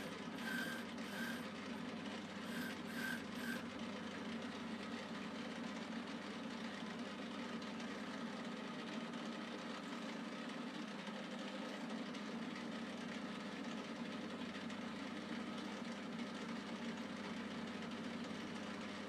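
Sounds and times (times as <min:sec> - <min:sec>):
metal lathe running: 0:00.0 - 0:03.7.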